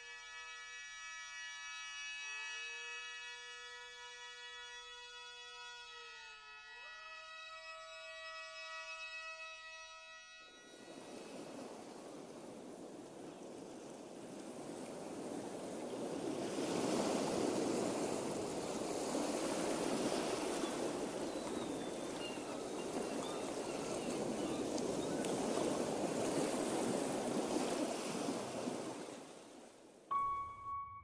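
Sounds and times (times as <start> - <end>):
waves washing on open water: 10.7 - 30.1.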